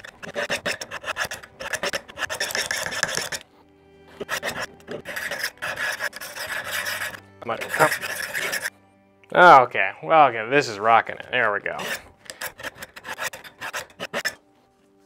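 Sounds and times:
knife rasping on sharpener rods: 0:00.0 - 0:03.5, 0:04.1 - 0:08.7, 0:11.7 - 0:14.4.

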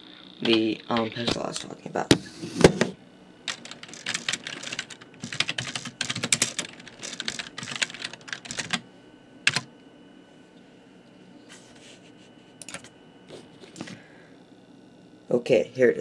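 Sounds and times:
typing on computer keyboard: 0:03.5 - 0:08.8, 0:09.5 - 0:09.7, 0:12.6 - 0:12.9.

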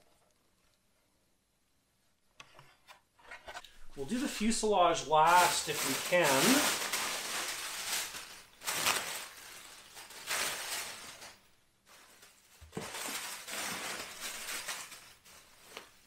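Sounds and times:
plastic sheet and bubble wrap crinkling: 0:03.8 - 0:16.0.

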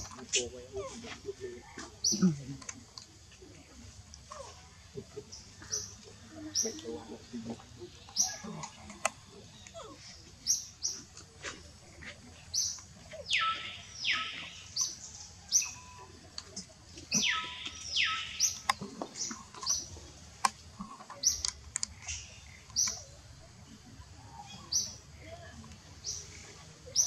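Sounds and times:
high-pitched animal chirps: 0:17.1 - 0:18.7.

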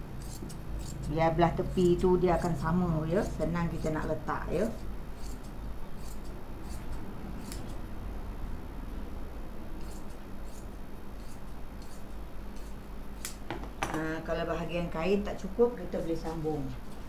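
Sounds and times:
steady low hum: 0:00.0 - 0:17.0
scissors snipping cloth: 0:07.4 - 0:07.8, 0:12.6 - 0:13.4.

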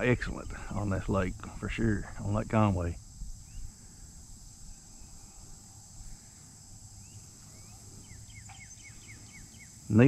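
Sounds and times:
high-pitched insect chorus: 0:00.0 - 0:10.0.

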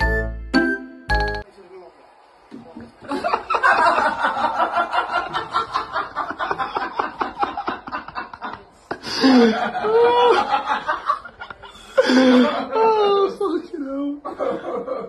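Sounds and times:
person snickering: 0:06.6 - 0:10.6.

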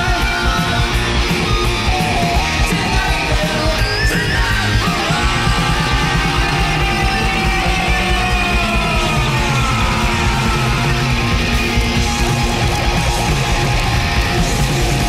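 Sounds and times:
bass guitar: 0:00.0 - 0:15.0
distorted electric guitar: 0:00.0 - 0:15.0
driving drums: 0:00.0 - 0:15.0.

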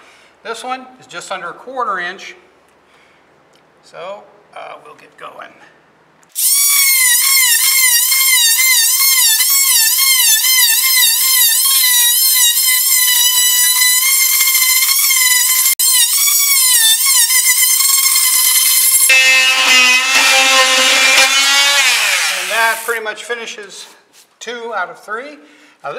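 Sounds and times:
oscillating saw cutting wood: 0:06.4 - 0:23.0.

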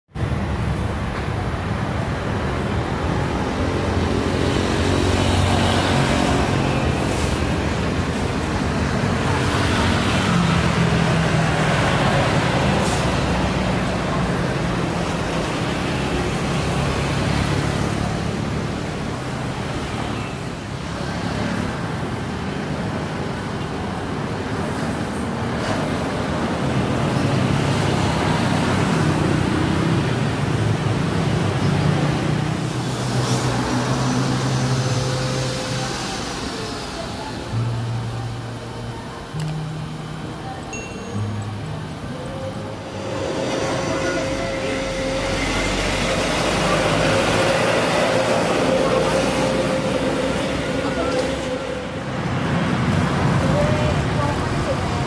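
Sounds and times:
jet engines taxiing: 0:42.3 - 0:54.7
jet plane passing low overhead: 0:42.7 - 0:54.2.

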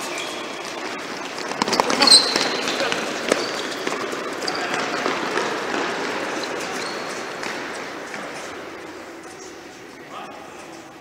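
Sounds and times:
shoe squeaks: 0:00.0 - 0:08.6
running footsteps on court: 0:00.0 - 0:10.7.

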